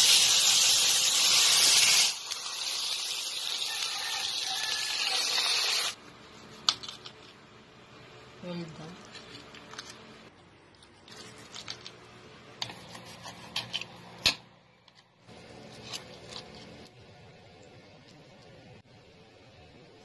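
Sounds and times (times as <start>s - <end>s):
knife and fork scraping a plate: 12.6s - 14.0s.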